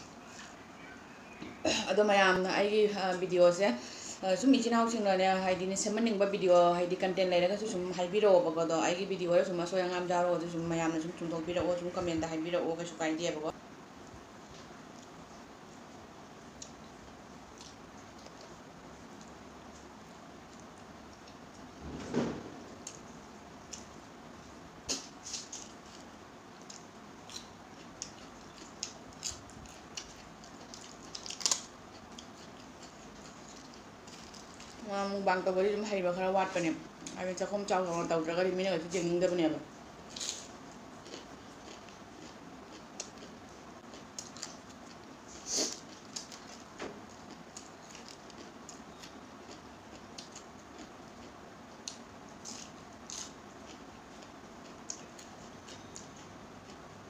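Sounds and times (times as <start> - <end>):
faint steady hiss: 0.0 - 57.0
chewing: 17.5 - 21.7, 24.9 - 34.8, 40.1 - 56.8.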